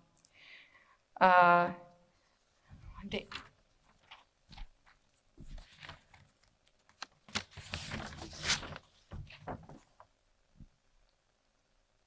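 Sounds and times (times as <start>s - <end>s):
paper rustling: 2.7s - 10.1s.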